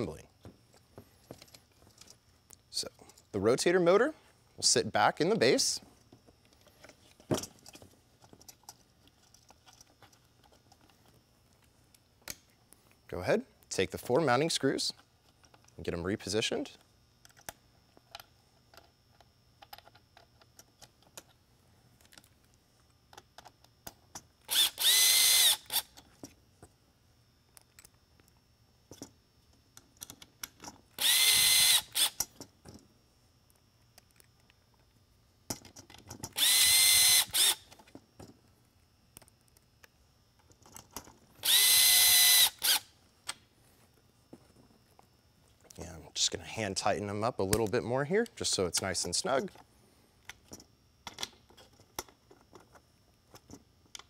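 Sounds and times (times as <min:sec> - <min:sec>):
screws and parts clicking: 0:23.1 - 0:26.1, 0:29.8 - 0:32.5, 0:35.5 - 0:38.0, 0:39.2 - 0:43.4
cordless drill motor whine: 0:24.4 - 0:26.0, 0:30.9 - 0:32.2, 0:36.3 - 0:37.7, 0:41.4 - 0:43.0.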